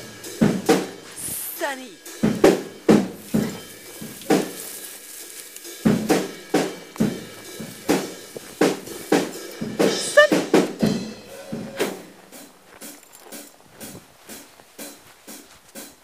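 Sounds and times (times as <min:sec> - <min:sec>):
cymbal wash: 0:00.0 - 0:12.5
bass drum hits: 0:02.2 - 0:04.7
snare drum hits: 0:02.2 - 0:04.7.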